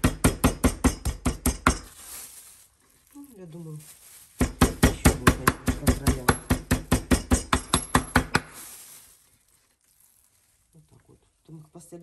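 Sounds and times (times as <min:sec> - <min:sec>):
meat mallet pounding chicken: 0:00.0 - 0:01.9, 0:04.4 - 0:08.5.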